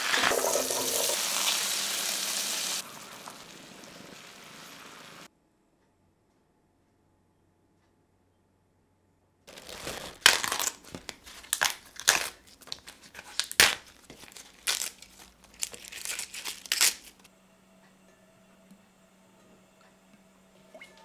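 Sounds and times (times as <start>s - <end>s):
leaves being torn by hand: 9.5s - 17.3s.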